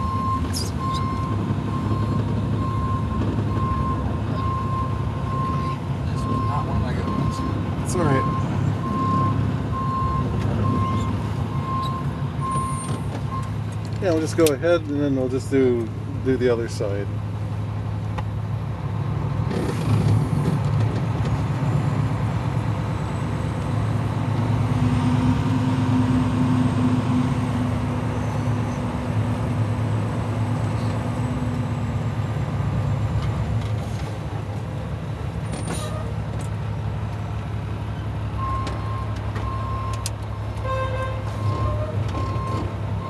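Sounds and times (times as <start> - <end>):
diesel engine droning: 0.0 - 43.0
sharp clicks: 38.6 - 40.3.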